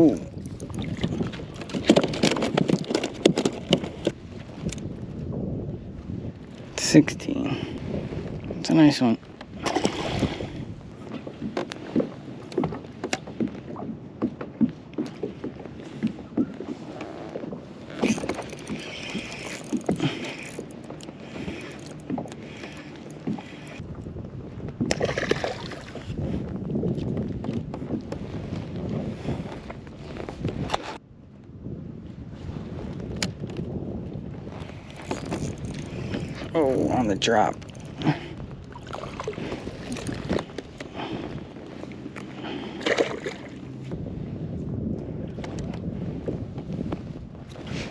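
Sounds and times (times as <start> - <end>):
water lapping against hull: 0.0 - 31.0, 32.4 - 47.9
wind on microphone: 0.0 - 47.9
handling clicks and knocks: 1.6 - 4.8, 17.9 - 23.5.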